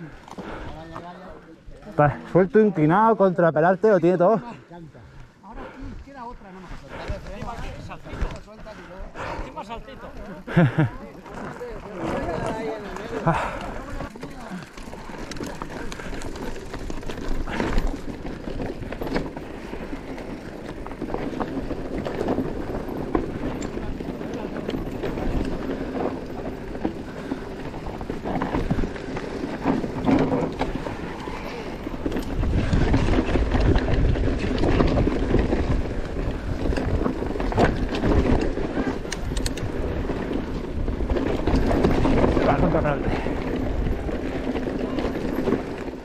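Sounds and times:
bike clattering and rattling: 6.0 - 46.0
tyres crunching over loose stones: 10.5 - 46.0
wind buffeting microphone: 14.6 - 46.0.

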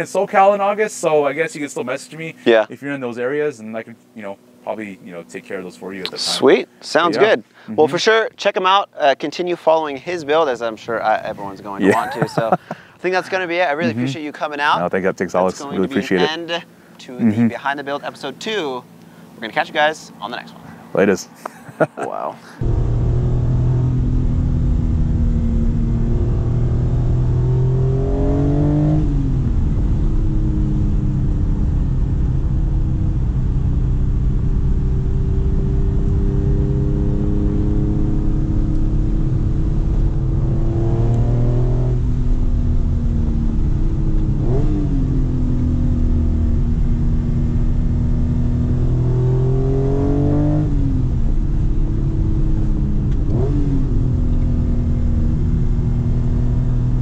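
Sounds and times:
car engine accelerating through gears: 22.6 - 57.0.

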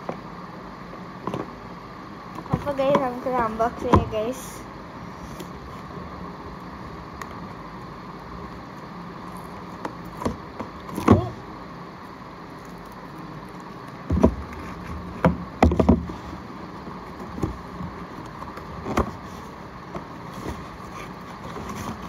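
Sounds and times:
steady background hum: 0.0 - 22.0
cardboard box knocks and scrapes: 14.1 - 16.3.

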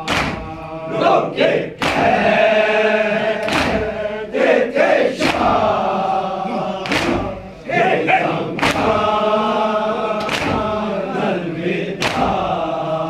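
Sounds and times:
hands slapping chests: 0.0 - 1.2, 1.8 - 2.4, 3.4 - 4.0, 5.2 - 5.8, 6.6 - 7.4, 8.3 - 9.1, 10.1 - 10.8, 12.0 - 12.5
men chanting together: 0.0 - 13.0.

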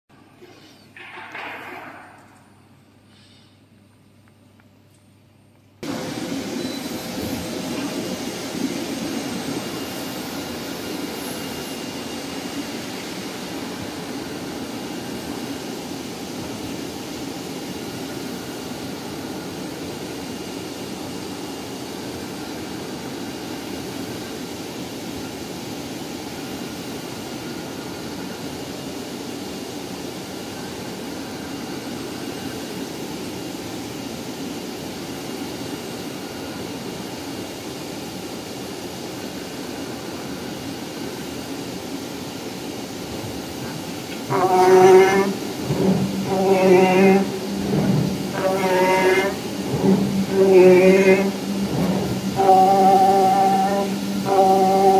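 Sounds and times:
faint high machine whine: 0.2 - 54.9
cutting machine rushing noise: 44.3 - 54.9.

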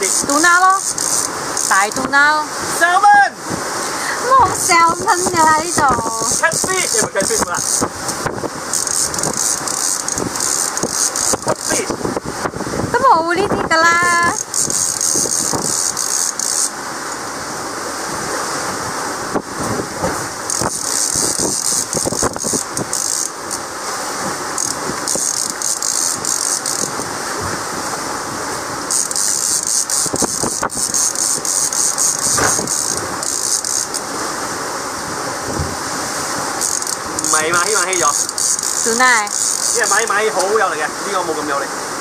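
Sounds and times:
short rattling clicks: 0.0 - 2.1, 8.7 - 11.9, 14.4 - 16.7, 20.5 - 23.6, 24.6 - 27.1, 28.9 - 34.1, 36.6 - 40.5
wind buffeting microphone: 0.0 - 40.8
water rushing past hull: 0.0 - 42.0.

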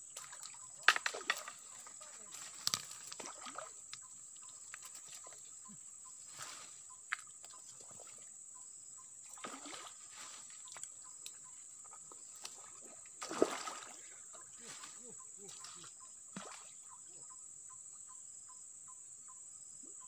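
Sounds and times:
water splashes: 0.0 - 5.4, 9.2 - 10.8, 12.3 - 17.0
wading in shallow water: 0.0 - 17.4.

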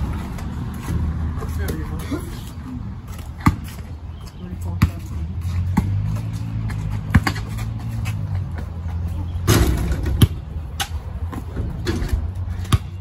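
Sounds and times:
basketball bouncing on concrete: 3.1 - 3.9, 4.6 - 11.8, 12.5 - 13.0.

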